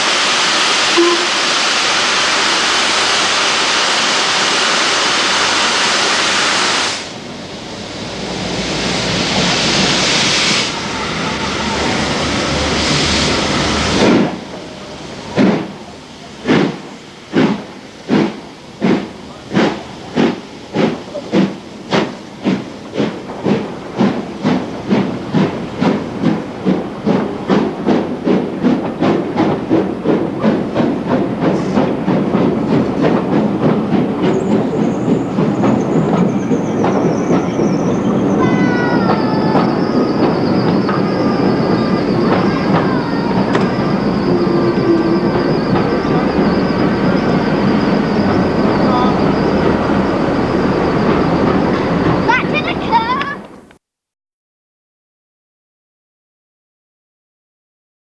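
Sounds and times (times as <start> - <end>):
steam hiss: 0.0 - 53.0
steam locomotive exhaust chuffs: 0.0 - 53.7
thin high squeal: 36.4 - 52.4.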